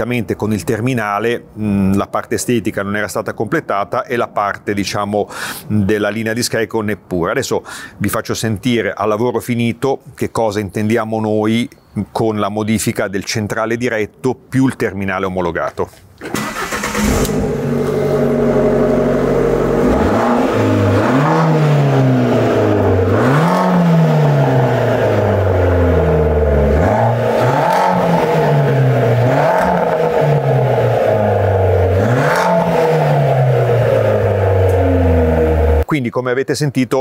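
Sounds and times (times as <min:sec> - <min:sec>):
car engine revving: 0:16.4 - 0:35.8.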